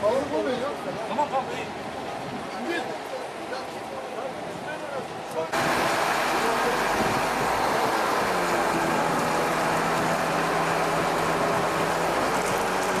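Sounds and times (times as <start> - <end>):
background rush: 5.1 - 13.0
crane engine humming: 5.6 - 13.0.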